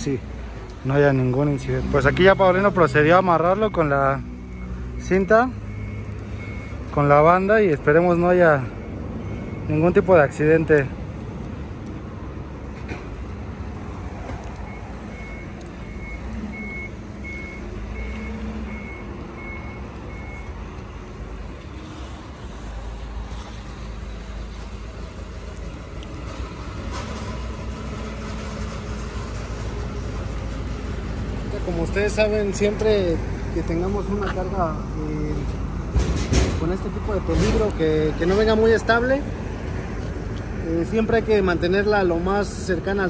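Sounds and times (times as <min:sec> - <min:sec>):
warning beeper beeps: 0:02.2 - 0:10.2.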